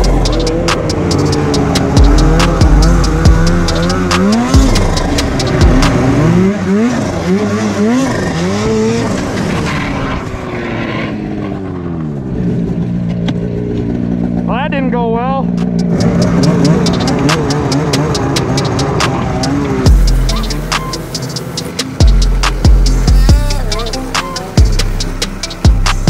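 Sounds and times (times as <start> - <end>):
snowmobile engine revving: 0.0 - 26.0
sharp clicks: 0.3 - 3.1, 15.5 - 19.2.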